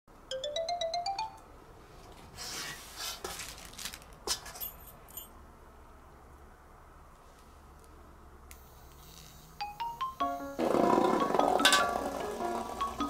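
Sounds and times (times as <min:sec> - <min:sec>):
rising chime jingle: 0:00.3 - 0:01.5.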